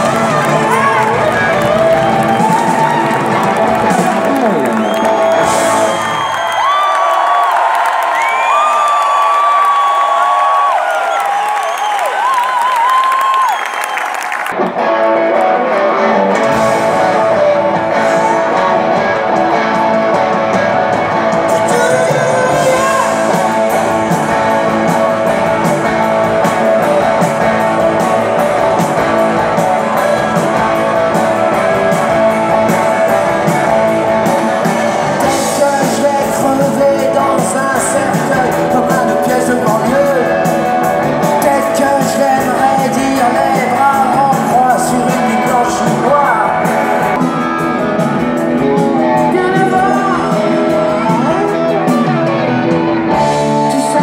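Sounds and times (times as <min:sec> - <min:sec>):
live rock band playing: 0:00.0 - 0:10.2, 0:12.2 - 0:54.0
drums: 0:00.0 - 0:54.0
electric guitars: 0:00.0 - 0:54.0
person singing: 0:21.4 - 0:24.1, 0:34.5 - 0:47.5, 0:48.6 - 0:54.0.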